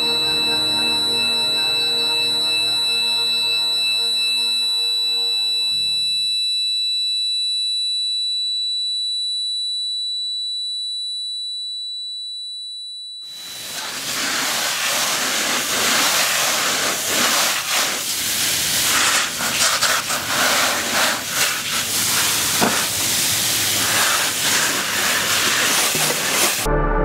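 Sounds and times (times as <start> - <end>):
hose spray hissing on plastic tray: 13.6 - 26.7.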